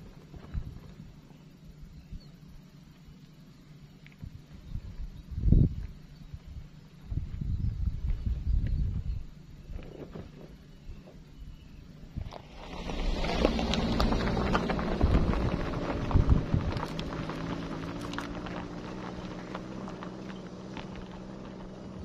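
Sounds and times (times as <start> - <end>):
van engine running: 0.0 - 22.0
tyres crunching on gravel: 12.0 - 22.0.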